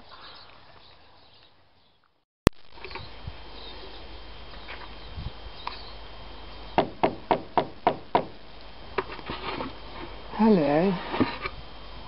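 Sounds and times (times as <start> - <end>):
knocks on wooden door: 6.8 - 8.4.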